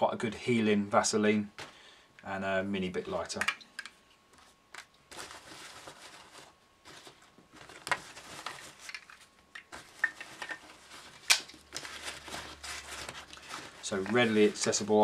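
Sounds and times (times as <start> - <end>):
fabric rustling: 4.3 - 15.0.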